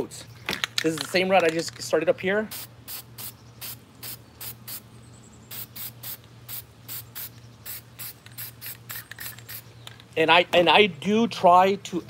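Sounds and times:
spray paint can hissing: 2.5s - 4.8s, 5.5s - 9.7s.

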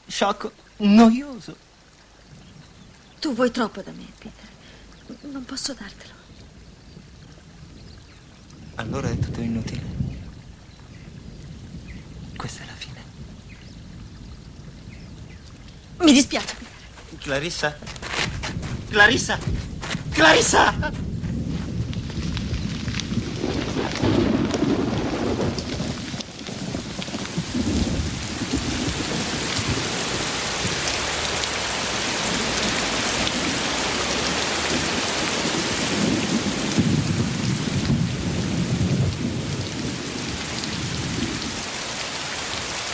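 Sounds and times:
heavy rain: 0.0s - 42.9s
thunder rolling: 8.6s - 41.7s.

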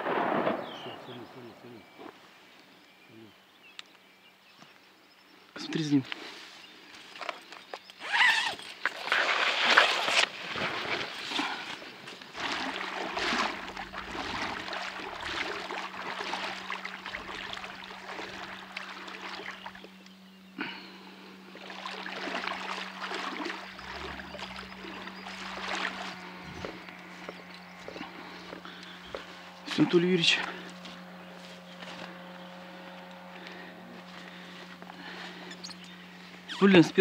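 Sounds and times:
water splashing and sloshing: 8.8s - 20.0s, 20.8s - 29.6s
faint steady hum: 10.2s - 37.0s.

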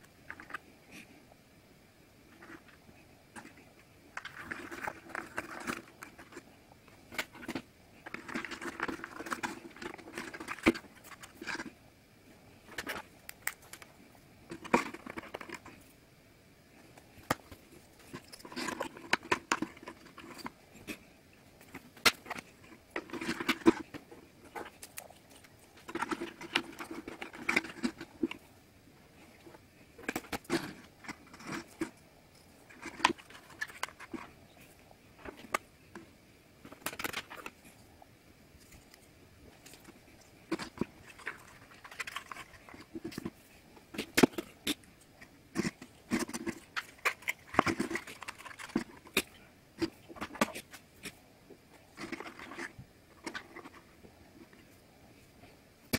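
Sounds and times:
wooden pieces rubbing: 39.6s - 44.8s, 45.5s - 51.2s.

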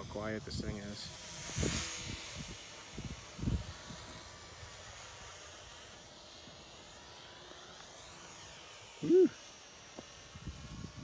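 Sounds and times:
model plane motor humming: 0.0s - 11.0s
person saying whew: 9.0s - 9.4s.

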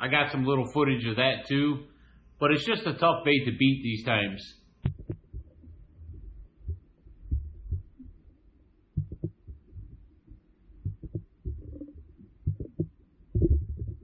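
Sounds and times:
muffled underwater water thumps: 4.8s - 8.2s, 9.0s - 14.0s.

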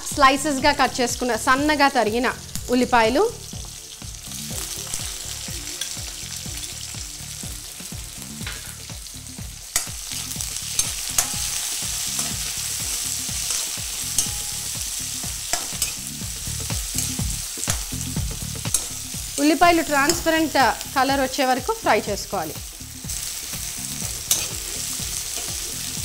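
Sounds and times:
onions sizzling in hot oil: 0.0s - 26.0s
metal spatula clicking on pan: 15.5s - 16.0s.

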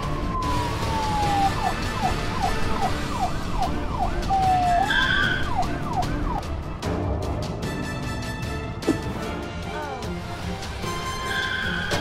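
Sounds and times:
police siren wailing and yelping: 0.0s - 6.4s.

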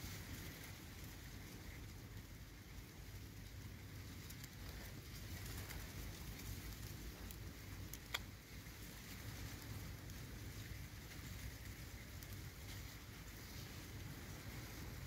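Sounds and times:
low steady rumble: 0.0s - 15.0s
soft ticks: 4.2s - 13.0s.

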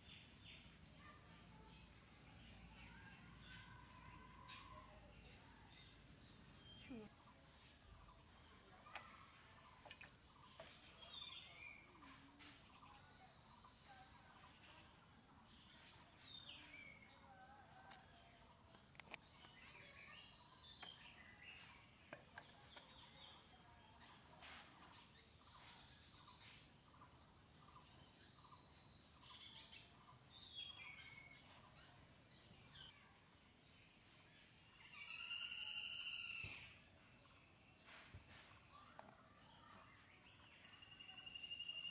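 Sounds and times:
crickets droning: 0.0s - 41.9s
bird chirps: 34.8s - 36.8s.

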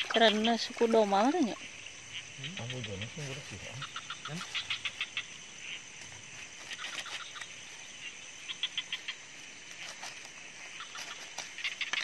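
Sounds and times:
high insect trill: 0.0s - 12.0s.

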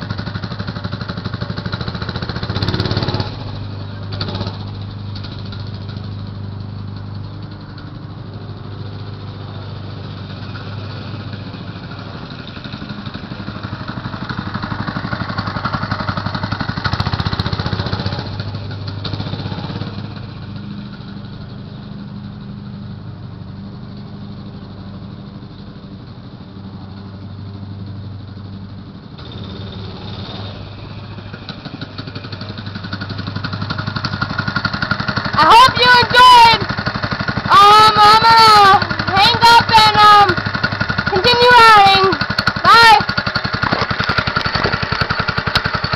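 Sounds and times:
minibike engine passing: 0.0s - 45.9s.

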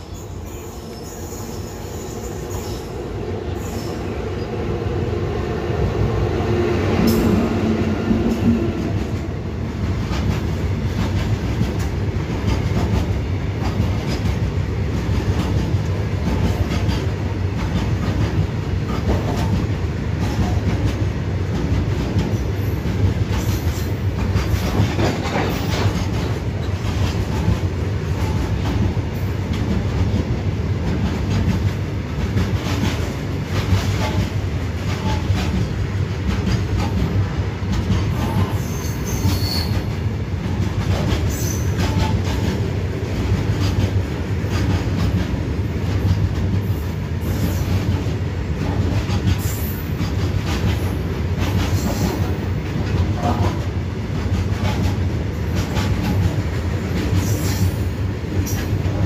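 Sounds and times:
train wheels clattering over rails: 5.9s - 59.0s.

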